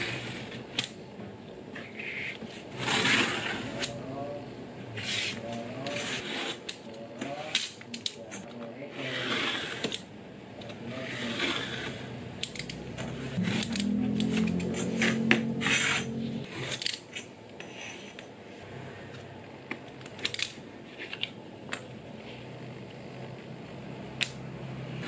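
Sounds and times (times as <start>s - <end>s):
knife blade scraping through leather: 2.8s - 3.9s
low hum: 12.2s - 16.5s.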